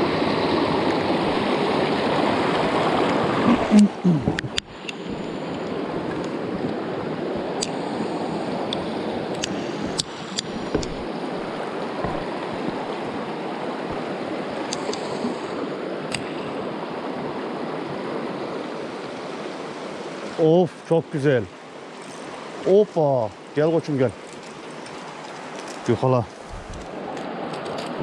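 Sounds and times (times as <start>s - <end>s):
stream rushing over rocks: 0.0s - 28.0s
faint clicks: 14.7s - 15.3s.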